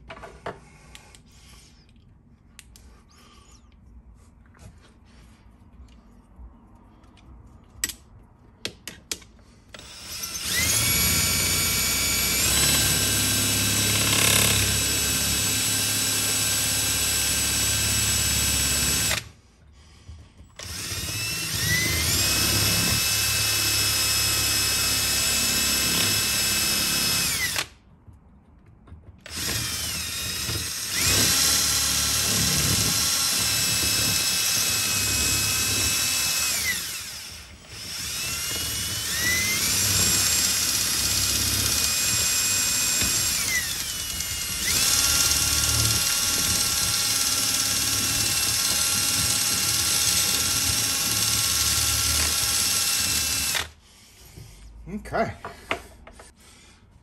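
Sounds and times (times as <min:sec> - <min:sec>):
power drill boring into wood: 0:09.8 - 0:19.3, 0:20.6 - 0:27.7, 0:29.3 - 0:53.8.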